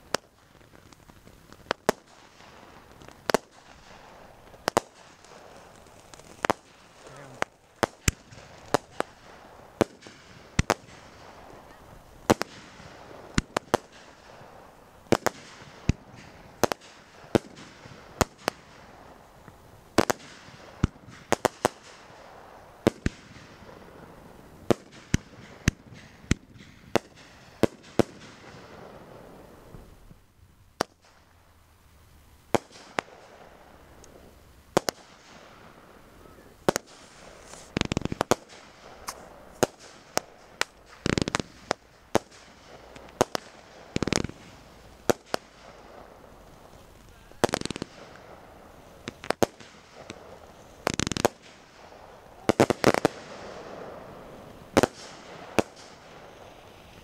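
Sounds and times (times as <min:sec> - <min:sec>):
fireworks bangs: 0:00.0 - 0:30.2, 0:32.5 - 0:57.0.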